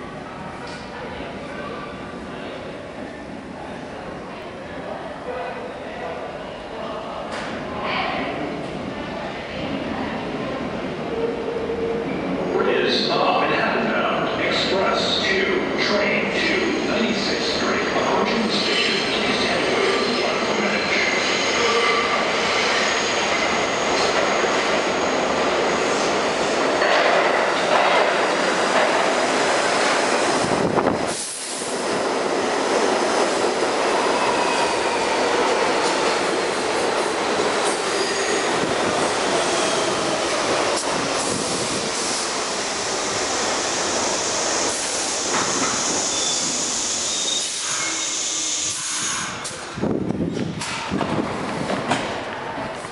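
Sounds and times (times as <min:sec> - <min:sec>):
subway train rumbling on rails: 0:00.0 - 0:52.9
steel wheels squealing: 0:45.3 - 0:49.4.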